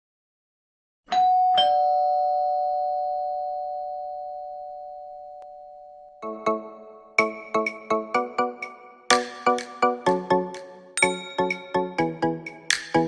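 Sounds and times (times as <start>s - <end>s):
two-note doorbell chime: 1.1s - 8.5s, 11.0s - 12.3s.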